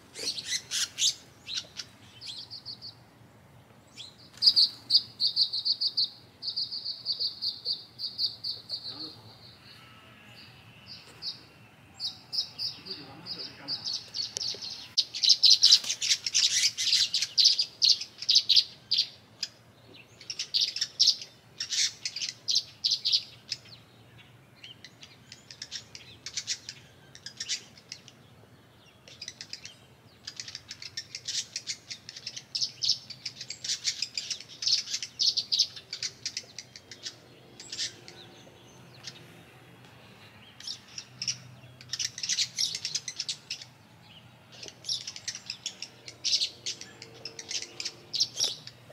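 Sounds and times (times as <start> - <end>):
songbirds chirping: 0.0 - 48.9.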